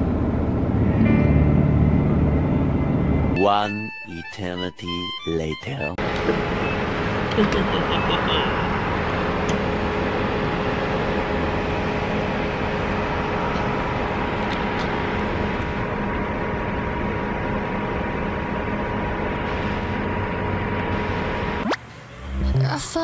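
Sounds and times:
mechanical hum: 0.0s - 3.4s, 6.0s - 23.0s
two-note whine: 0.5s - 9.0s.

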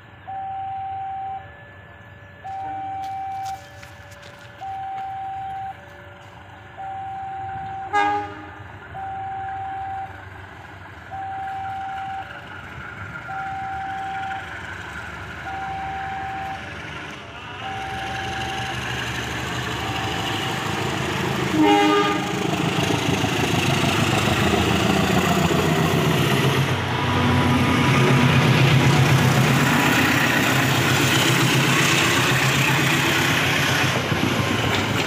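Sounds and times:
locomotive engine and wheels: 0.0s - 35.0s
level crossing alarm tone: 0.2s - 10.2s, 11.1s - 12.5s, 13.2s - 14.6s, 15.4s - 16.8s, 17.6s - 19.1s, 19.7s - 20.6s
locomotive horn toot: 7.2s - 8.7s, 21.4s - 22.5s.

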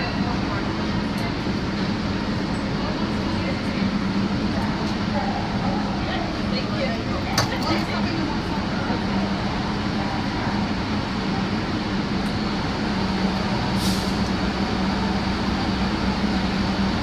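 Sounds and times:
subway car running on rails: 0.0s - 17.0s
short hiss: 13.8s - 14.2s.

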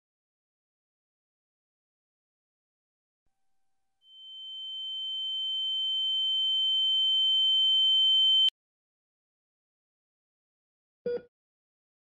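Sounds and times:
high-pitched ringing tone: 4.1s - 8.5s.

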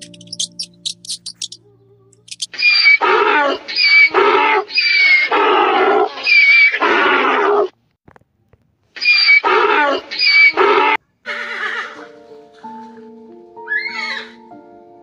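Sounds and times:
music: 0.0s - 2.4s, 11.3s - 15.0s.

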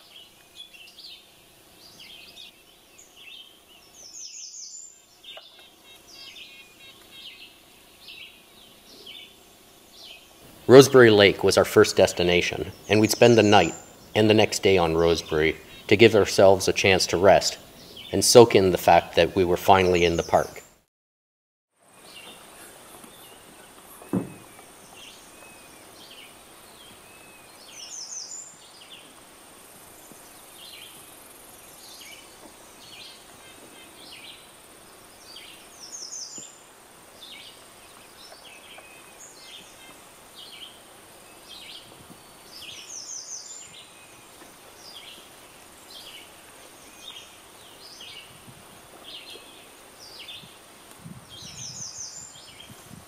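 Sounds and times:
small birds chirping: 0.0s - 20.8s, 22.0s - 53.0s
low thump: 24.1s - 24.5s.

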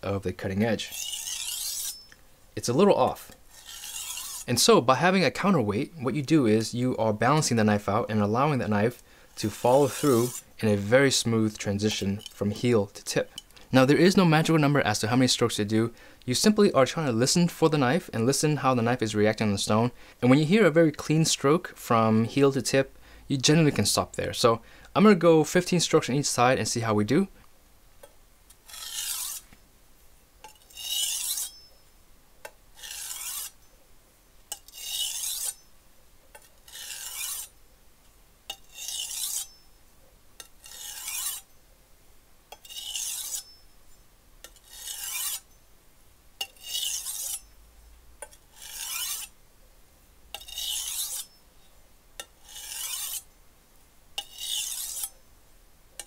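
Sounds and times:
knife scraping on whetstone: 0.8s - 2.2s, 3.5s - 4.6s, 9.4s - 12.7s, 28.6s - 29.5s, 30.4s - 31.8s, 32.8s - 33.6s, 34.5s - 35.7s, 36.4s - 37.6s, 38.5s - 39.7s, 40.4s - 41.5s, 42.5s - 43.6s, 44.4s - 45.5s, 46.4s - 47.5s, 48.2s - 49.3s, 50.3s - 51.4s, 52.2s - 53.3s, 54.2s - 55.2s.

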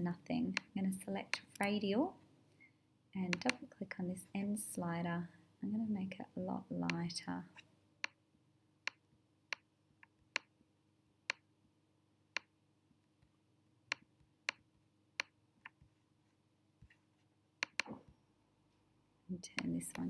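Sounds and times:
computer mouse clicks: 3.3s - 3.6s, 17.6s - 17.9s, 19.5s - 20.0s.

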